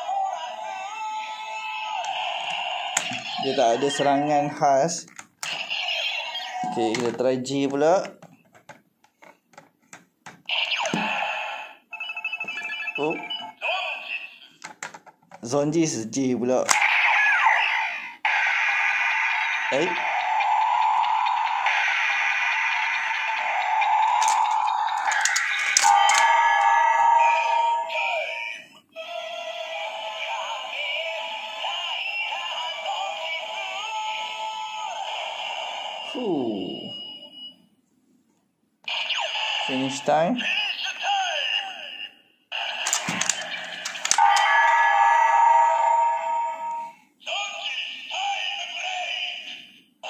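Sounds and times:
toy recorded voice calling out: 0.0 - 4.4, 5.9 - 7.2, 12.9 - 14.6, 16.7 - 37.0, 39.2 - 49.8
synthesized announcer voice: 3.3 - 4.7, 19.7 - 20.1
electronic toy music: 19.7 - 28.6
plastic toy clicks: 24.1 - 26.3, 42.8 - 44.5.

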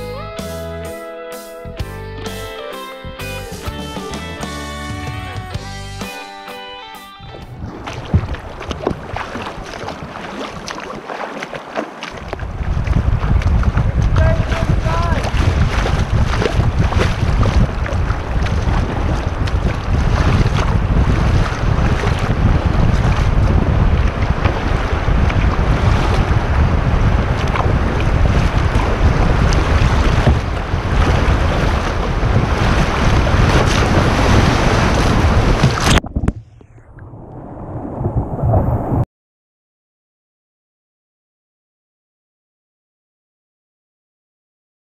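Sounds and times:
wind buffeting microphone: 7.3 - 11.0, 12.1 - 39.0.

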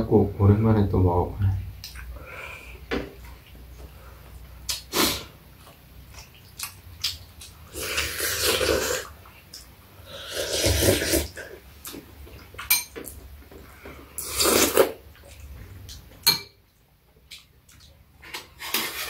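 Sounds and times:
slurping soup: 7.7 - 9.2, 10.0 - 11.6, 18.2 - 19.0.

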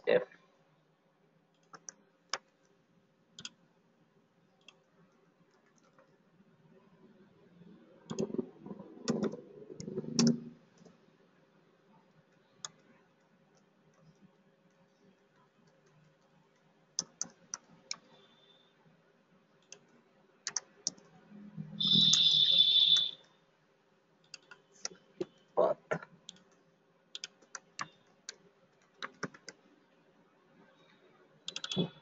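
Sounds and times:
computer mouse and keyboard clicks: 1.5 - 2.8, 3.4 - 3.6, 4.6 - 6.2, 8.0 - 11.0, 12.1 - 18.2, 19.6 - 21.2, 24.2 - 29.8, 31.4 - 32.0.

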